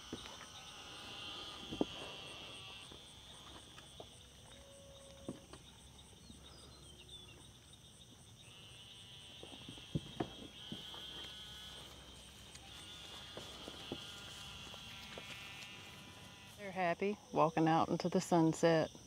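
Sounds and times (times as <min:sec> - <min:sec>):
insects chorus: 0:00.0 - 0:19.0.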